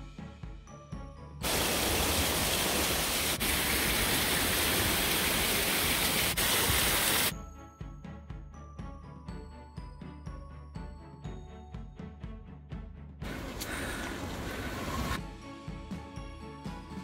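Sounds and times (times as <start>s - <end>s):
background music: 0.0s - 1.9s, 7.3s - 17.0s
waterfall rushing: 1.4s - 7.3s.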